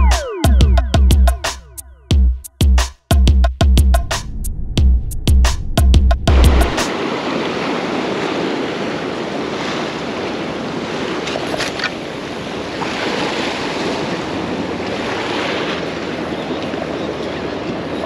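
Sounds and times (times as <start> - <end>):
surf breaking against rocks: 6.3 - 16.3.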